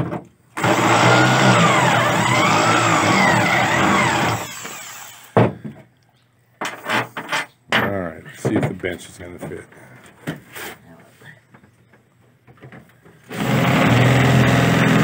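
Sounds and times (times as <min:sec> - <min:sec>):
electric drill boring: 0:00.6 - 0:05.4, 0:13.3 - 0:15.0.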